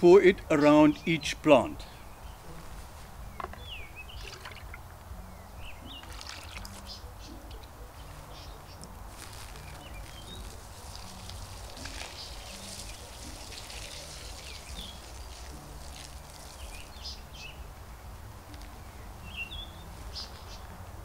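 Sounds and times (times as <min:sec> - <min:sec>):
liquid trickling onto soil: 0:02.5 - 0:05.3, 0:05.9 - 0:17.8.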